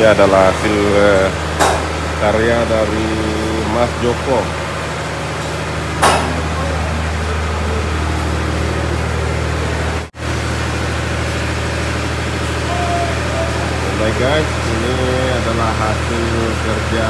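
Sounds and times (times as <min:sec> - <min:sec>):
engine idling: 0:00.0 - 0:17.0
sharp knock: 0:06.0 - 0:06.4.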